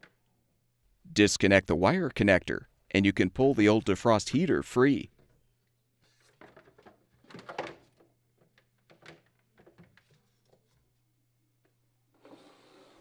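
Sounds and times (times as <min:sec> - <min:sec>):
gloved hands handling wiring: 0:05.1 - 0:11.0.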